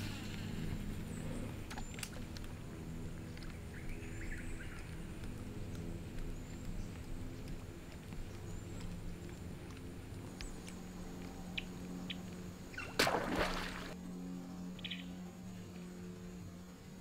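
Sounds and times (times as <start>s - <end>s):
steady low hum: 0.0s - 17.0s
lure ticks and splashes on water: 1.6s - 14.0s.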